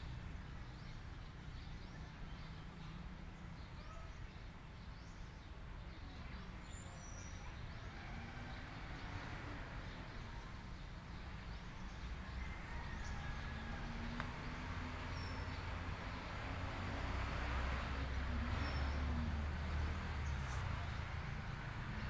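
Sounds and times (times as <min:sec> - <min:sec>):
faint high bird chirps: 0:03.6 - 0:04.5.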